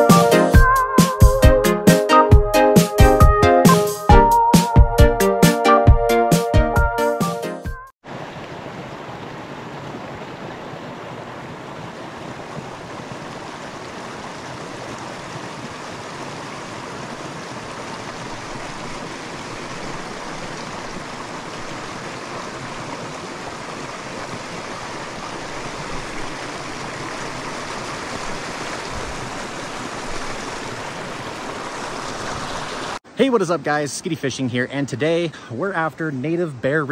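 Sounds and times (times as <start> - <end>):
creek rushing over rocks: 8.0 - 34.5.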